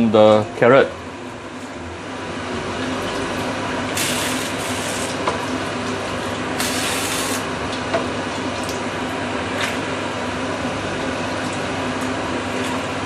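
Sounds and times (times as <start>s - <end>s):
steady simmer: 0.0s - 13.0s
liquid splashing and hissing in wok: 3.9s - 5.2s, 6.6s - 7.5s.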